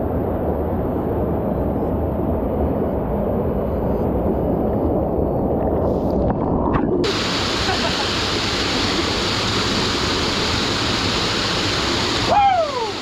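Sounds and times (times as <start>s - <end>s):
waterfall roaring: 7.0s - 13.0s.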